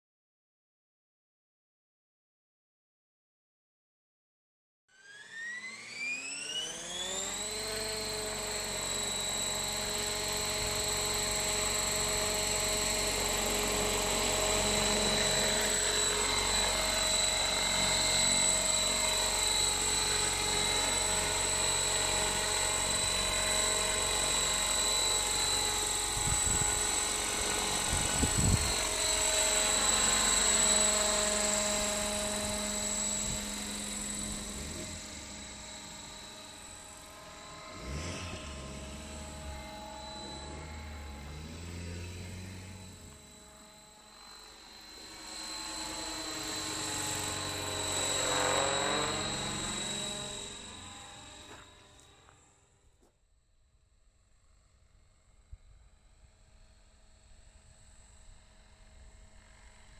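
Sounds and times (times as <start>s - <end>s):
model helicopter motor whine: 4.9s - 59.9s
rotor noise: 7.3s - 51.4s.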